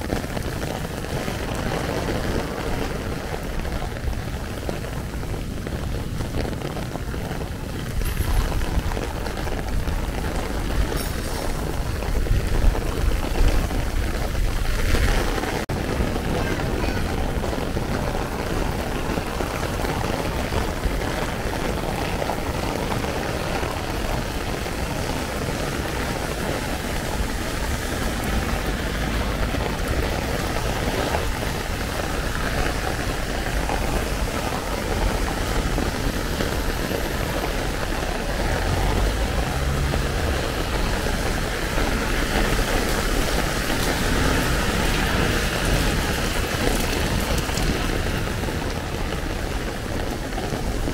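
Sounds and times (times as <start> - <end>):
city street traffic: 0.0 - 50.9
heavy rain on an umbrella: 0.0 - 50.9.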